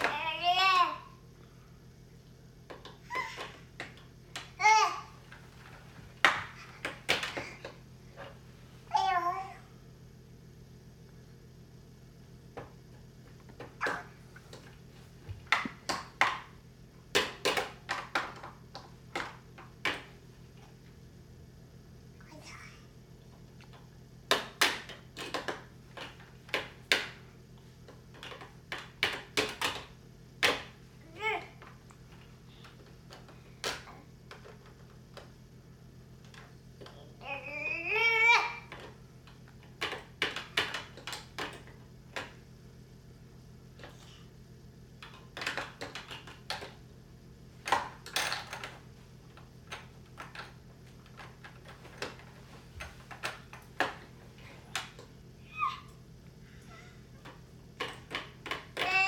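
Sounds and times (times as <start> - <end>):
faint steady hum: 0.0 - 59.0
plastic toys clicking and rattling: 17.1 - 20.1, 24.3 - 27.1, 28.1 - 35.3, 36.2 - 42.4, 45.0 - 46.8, 47.6 - 55.1, 57.2 - 59.0.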